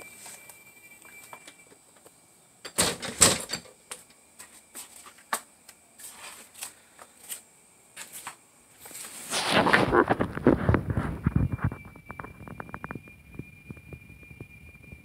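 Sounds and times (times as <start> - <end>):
high-pitched insect drone: 9.8 - 15.0.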